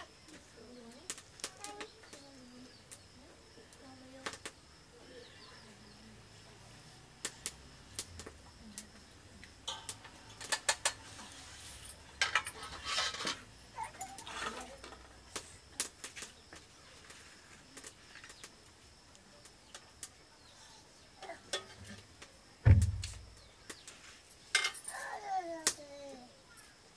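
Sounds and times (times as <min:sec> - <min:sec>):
spoons clinking against pots: 0:09.6 - 0:11.0.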